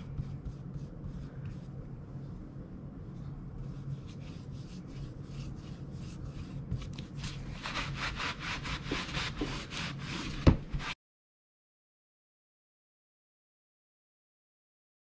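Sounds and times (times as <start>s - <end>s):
paper towel rubbing on wood: 0.0s - 1.7s, 3.7s - 11.0s
brush strokes on wood: 3.6s - 11.0s.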